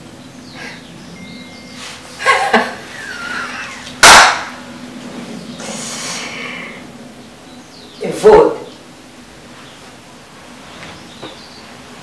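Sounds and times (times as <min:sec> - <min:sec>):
loud sharp crack: 0:04.0 - 0:04.7.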